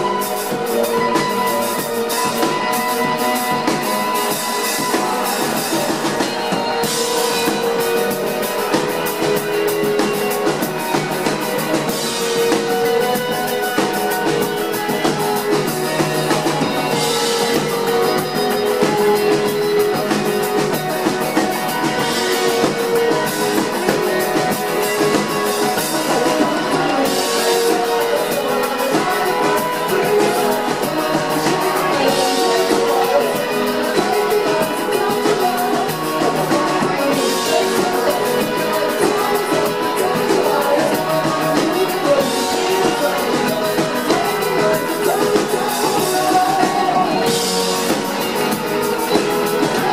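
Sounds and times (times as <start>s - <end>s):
drums beating steadily: 0.0s - 49.9s
live rock band playing: 0.0s - 49.9s.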